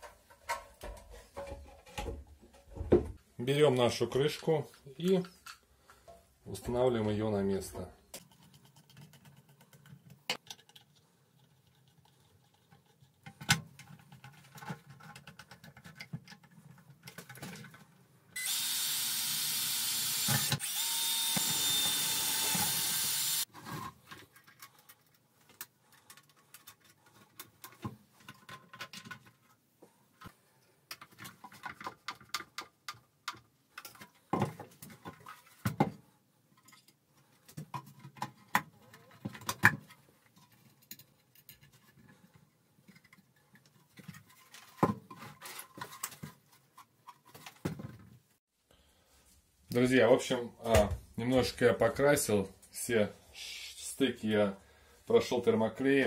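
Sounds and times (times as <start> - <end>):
plastic parts and screws clicking: 8.1 - 48.1
cordless drill running: 18.4 - 23.5.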